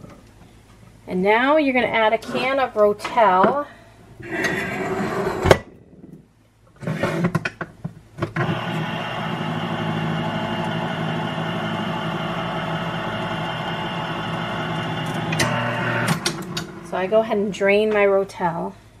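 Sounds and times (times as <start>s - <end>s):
electric can opener humming: 8.4s - 16.9s.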